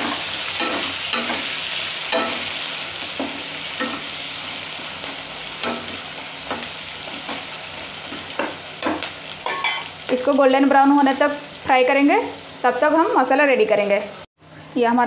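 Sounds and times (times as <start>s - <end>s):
onions sizzling in hot oil: 0.0s - 15.0s
spatula scraping and knocking pan: 5.0s - 9.9s.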